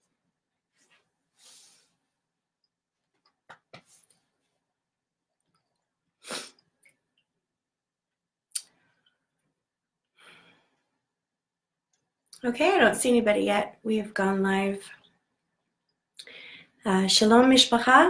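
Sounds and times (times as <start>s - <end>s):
woman breathing quietly: 0.9s - 2.1s, 10.1s - 11.1s, 16.2s - 16.8s
sharp sniff: 1.4s - 2.0s, 6.2s - 6.6s.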